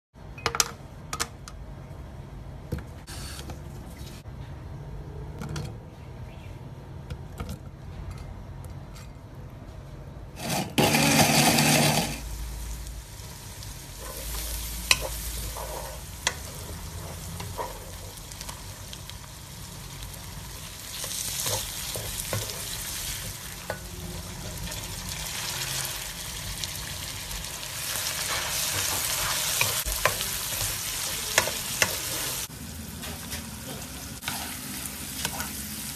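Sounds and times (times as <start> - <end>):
wooden spatula scraping wok: 10.4 - 12.3, 13.9 - 18.6, 34.2 - 35.6
food sizzling in a wok: 10.4 - 35.9.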